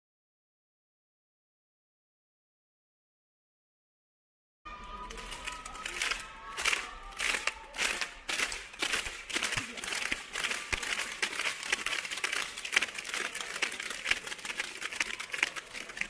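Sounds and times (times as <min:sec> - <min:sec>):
spectators clapping: 0:05.0 - 0:16.0.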